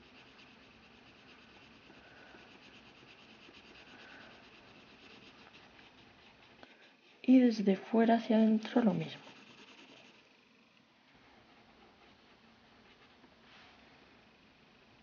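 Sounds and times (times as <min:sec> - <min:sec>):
colored pencil scratching on paper: 0:00.0 - 0:07.6, 0:08.3 - 0:10.5.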